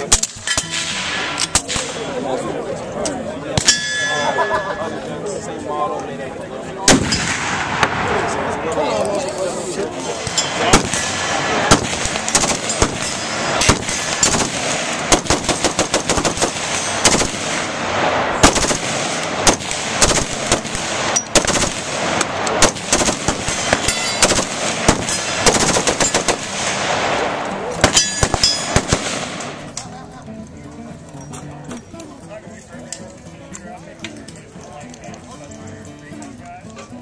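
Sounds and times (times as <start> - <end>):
rifle gunshots: 6.9 - 8.7, 10.0 - 29.7.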